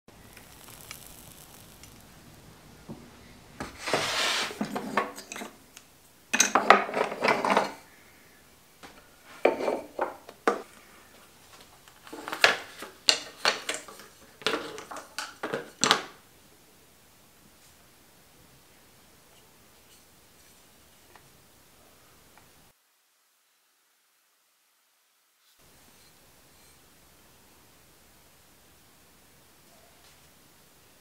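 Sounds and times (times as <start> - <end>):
cloth wiping metal tool: 3.4 - 4.9
metal tools clinking on workbench: 4.7 - 5.6.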